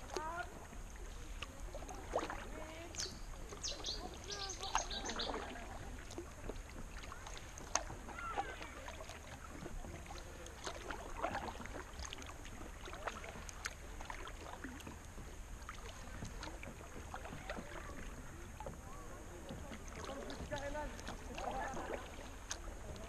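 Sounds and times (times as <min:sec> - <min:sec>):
water drips: 0:00.0 - 0:18.8
paddle splashing in water: 0:00.0 - 0:23.0.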